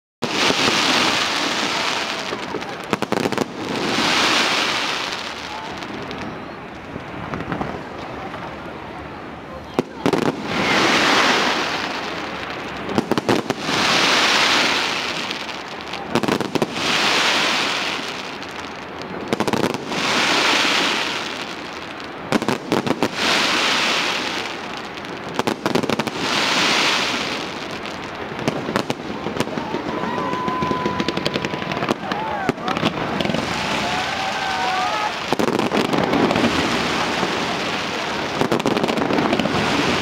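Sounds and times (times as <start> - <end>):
fireworks bangs: 0.2 - 40.0
rushing hiss: 10.2 - 40.0.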